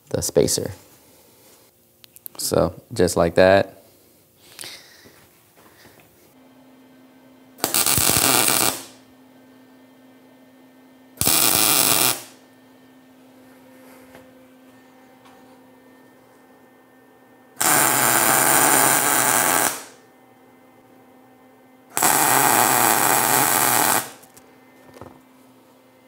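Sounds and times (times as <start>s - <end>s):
welding bursts: 7.6s - 9.0s, 11.2s - 12.4s, 17.6s - 20.0s, 22.0s - 24.3s.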